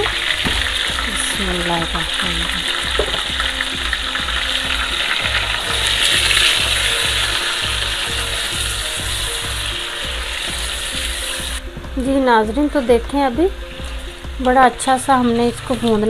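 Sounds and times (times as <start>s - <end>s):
chicken sizzling in hot oil: 0.0s - 11.7s.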